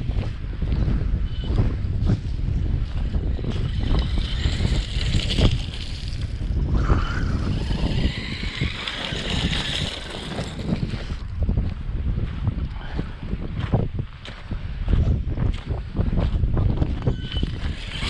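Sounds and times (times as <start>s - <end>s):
wind buffeting microphone: 0.0s - 18.0s
tyres on gravel: 0.9s - 11.4s, 16.3s - 18.0s
rc truck motor whine: 1.2s - 1.9s, 2.8s - 11.3s, 16.9s - 18.0s.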